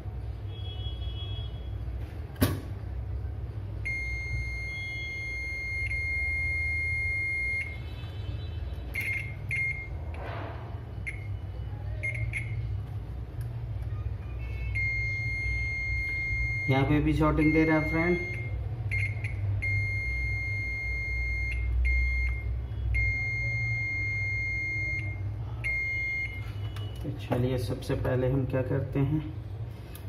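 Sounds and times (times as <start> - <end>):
low steady hum: 0.0 - 30.0
multimeter continuity beeps: 3.8 - 8.1, 8.9 - 10.0, 10.9 - 12.8, 14.6 - 27.3.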